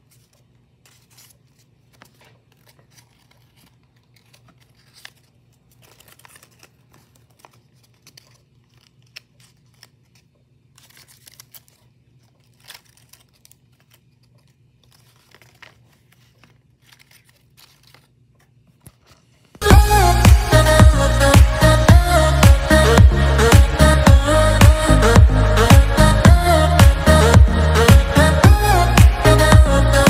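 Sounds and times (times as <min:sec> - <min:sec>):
paper rustling and crinkling: 0:00.0 - 0:19.6
low steady hum: 0:00.0 - 0:30.0.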